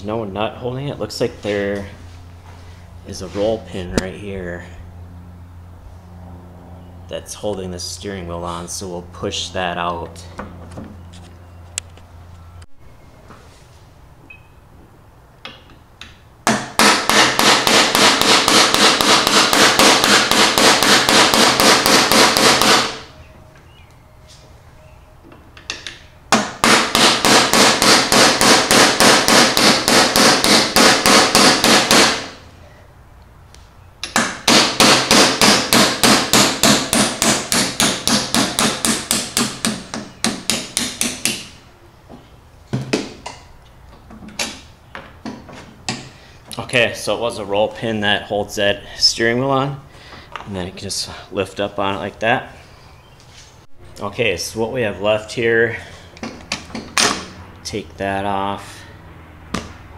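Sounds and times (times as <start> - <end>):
hammer striking pin: 34.0 - 41.6.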